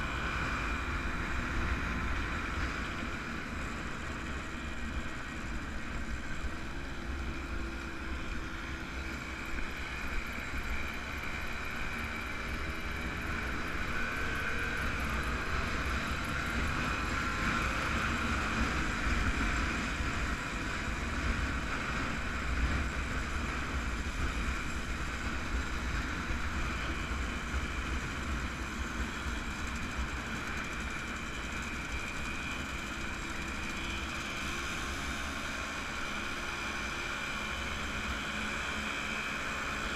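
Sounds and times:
motorcycle engines running: 0:00.0 - 0:39.9.

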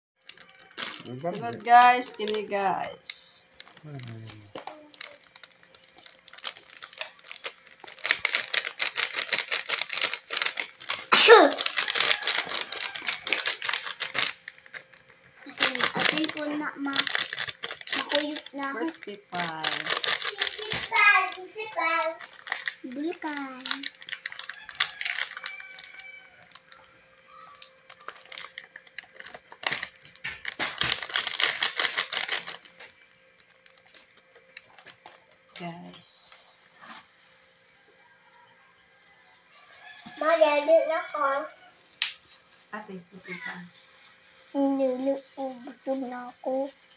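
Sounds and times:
plastic sachet crinkling: 0:00.2 - 0:35.7, 0:39.0 - 0:46.9.

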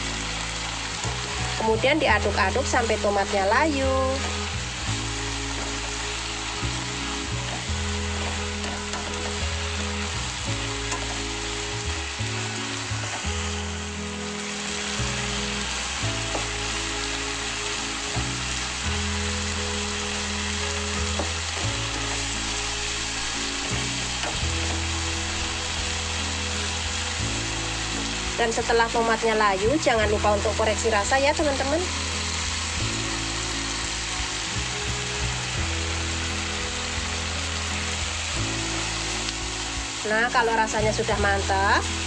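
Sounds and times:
background music: 0:00.0 - 0:42.0
food sizzling in a wok: 0:00.0 - 0:42.0.

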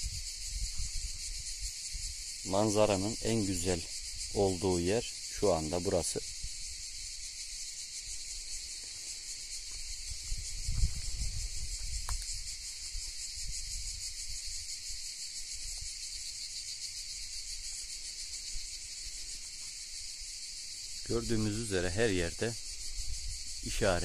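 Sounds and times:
cicadas shrilling: 0:00.0 - 0:24.0
low rumble on microphone: 0:10.1 - 0:12.4.

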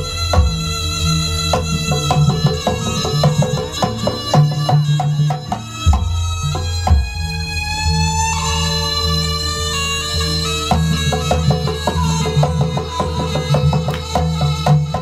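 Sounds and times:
heavy low drum: 0:00.0 - 0:08.5
drums and metal percussion ensemble: 0:00.0 - 0:15.0.

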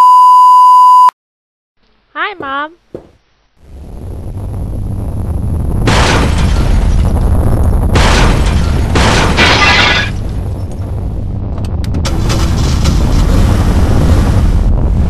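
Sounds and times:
crashing noise bursts: 0:03.6 - 0:15.0
deep earthquake rumble: 0:03.6 - 0:15.0.

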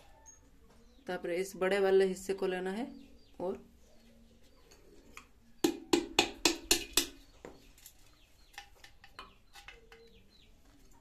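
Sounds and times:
small birds chirping faintly: 0:00.0 - 0:11.0
hammer tapping nail into clay pot: 0:05.6 - 0:07.2.

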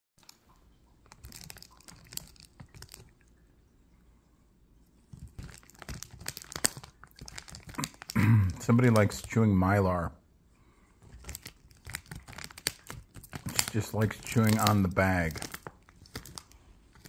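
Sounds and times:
foil crinkling: 0:01.0 - 0:03.2, 0:05.1 - 0:09.4, 0:11.0 - 0:17.0
cat chewing foil bag: 0:01.0 - 0:03.4, 0:05.0 - 0:09.5, 0:11.0 - 0:17.0.

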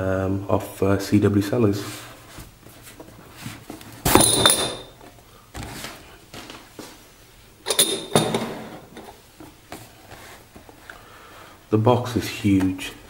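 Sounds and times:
faint handling rustle: 0:09.0 - 0:11.0.

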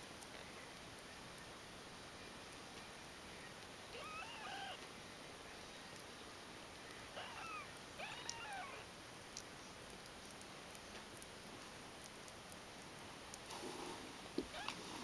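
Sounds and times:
kittens mewing: 0:03.9 - 0:04.8, 0:07.1 - 0:08.9.

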